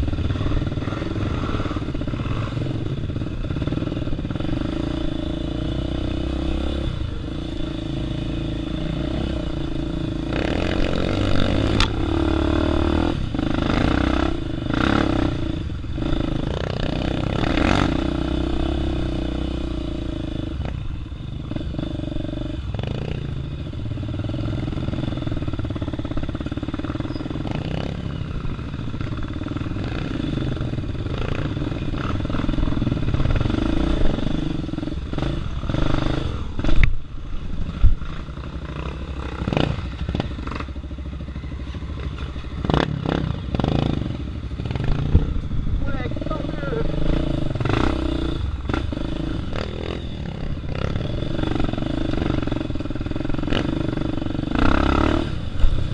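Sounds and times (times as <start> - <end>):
dirt bike engine: 0.0 - 55.9.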